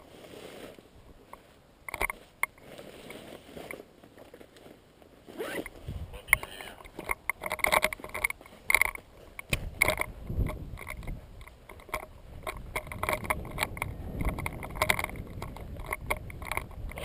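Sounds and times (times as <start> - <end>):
gear rustling at microphone: 0.0 - 17.0
wind rumble on microphone: 5.7 - 6.4, 9.5 - 17.0.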